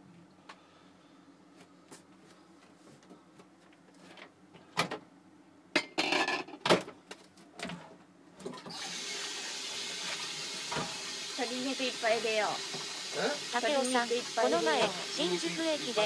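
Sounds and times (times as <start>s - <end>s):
kitchenware knocks and clatters: 5.8s - 6.9s
tap water running into sink: 8.7s - 16.0s.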